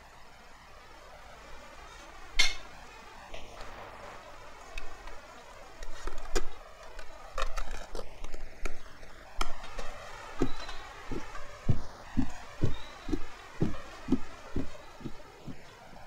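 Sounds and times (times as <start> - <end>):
steady low thudding: 10.4 - 15.7.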